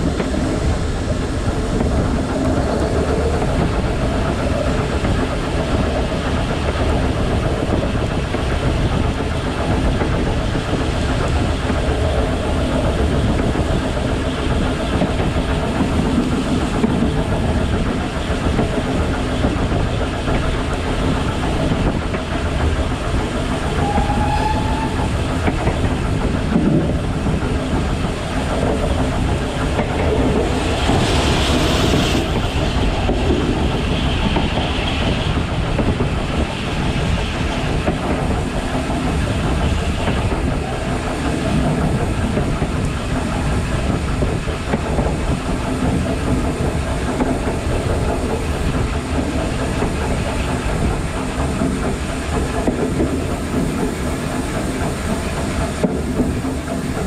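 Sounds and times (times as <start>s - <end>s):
steam hiss: 0.0s - 57.0s
train wheels rumbling over rails: 0.0s - 57.0s.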